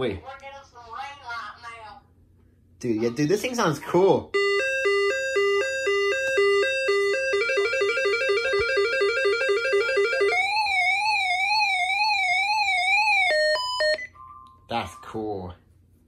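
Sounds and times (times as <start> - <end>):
warbling siren tone: 4.4 - 14.5.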